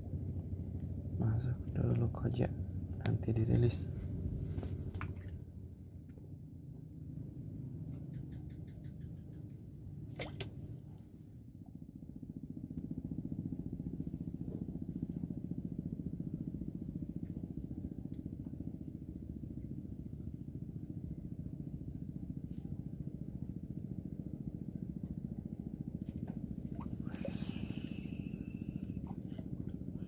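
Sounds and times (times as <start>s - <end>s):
small engine throbbing: 23.0s - 30.0s.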